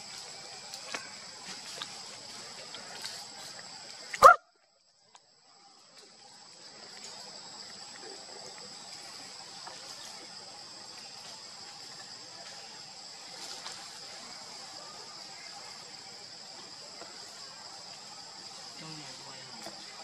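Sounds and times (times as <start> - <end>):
high background hiss: 0.0 - 20.0
short bark-like call: 4.2 - 4.5.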